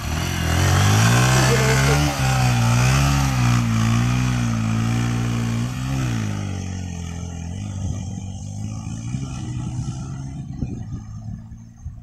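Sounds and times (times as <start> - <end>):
dirt bike engine revving: 0.0 - 11.6.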